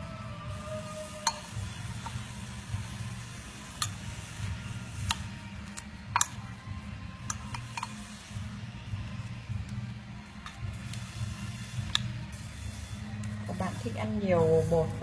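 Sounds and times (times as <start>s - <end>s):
steady low hum: 0.0s - 15.0s
utensils clinking against ceramic bowl: 1.2s - 1.6s, 6.1s - 6.4s, 7.2s - 8.1s.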